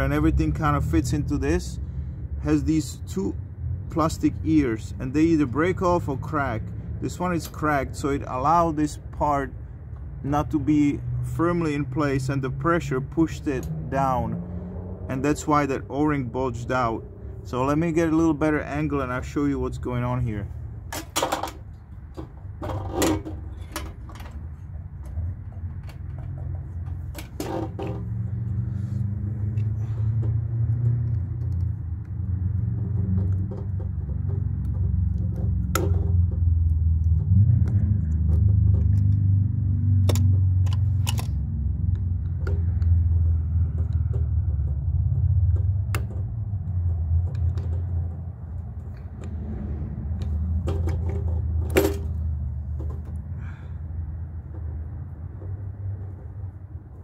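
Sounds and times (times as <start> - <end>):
clicks and clinks of pliers: 40.0 - 42.9.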